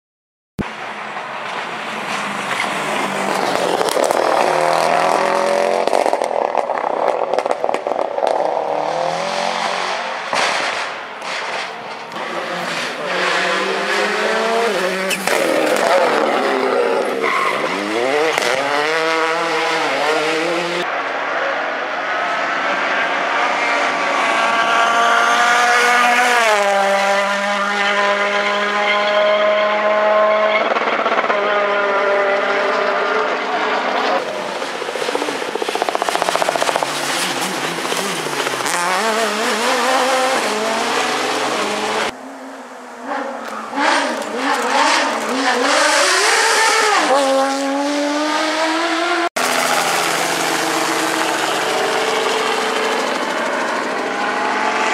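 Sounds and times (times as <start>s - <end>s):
rally car engine revving: 0.7s - 54.9s
exhaust cracks: 1.4s - 8.7s, 34.2s - 41.4s
rally car accelerating through gears: 1.6s - 10.3s, 12.2s - 21.4s, 22.0s - 54.9s.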